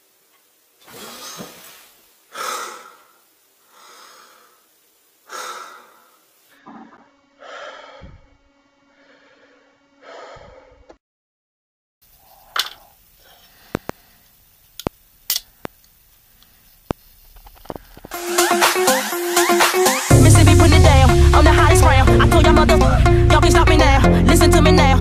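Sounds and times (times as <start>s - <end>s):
man breathing hard: 2.3s - 4.6s, 5.3s - 8.3s, 8.9s - 10.9s, 13.2s - 14.3s.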